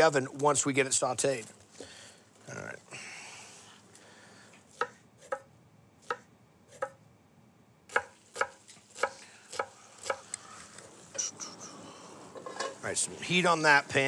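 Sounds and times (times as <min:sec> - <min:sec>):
knife chopping onion on wood: 0:04.7 - 0:07.0, 0:07.9 - 0:10.3.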